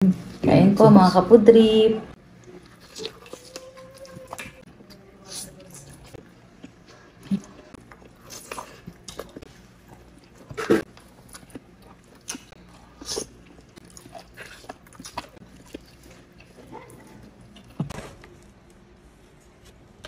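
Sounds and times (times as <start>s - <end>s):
biting and chewing: 2.4s - 18.5s.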